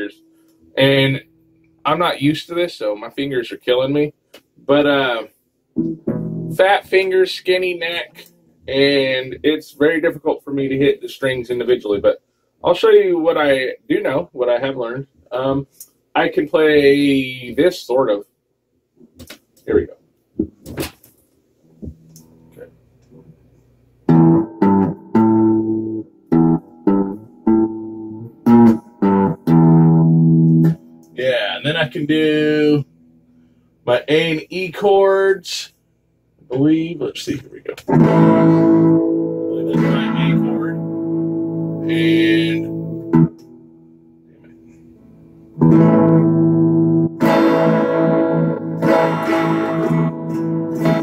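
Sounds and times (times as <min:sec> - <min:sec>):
electric guitar plucked notes: 0:05.8 - 0:06.7, 0:24.1 - 0:31.2, 0:37.8 - 0:51.0.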